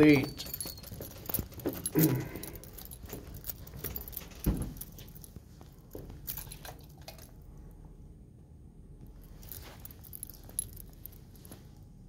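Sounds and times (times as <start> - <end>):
keys jangling: 0.0 - 7.4, 9.2 - 11.8
footsteps on tile floor: 0.2 - 6.4.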